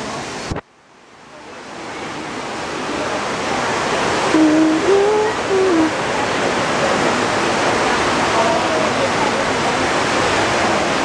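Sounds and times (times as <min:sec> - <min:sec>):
waterfall splashing into pool: 0:00.0 - 0:00.6, 0:01.4 - 0:11.0
low hooting call: 0:04.3 - 0:06.0.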